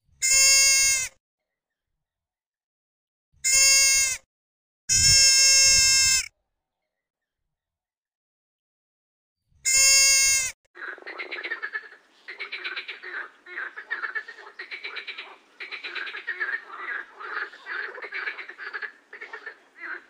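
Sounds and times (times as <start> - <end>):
young deer bleat: 0.2 - 1.1, 3.4 - 4.2, 4.9 - 6.3, 9.6 - 10.6
rattling croak-like animal calls: 9.7 - 20.0.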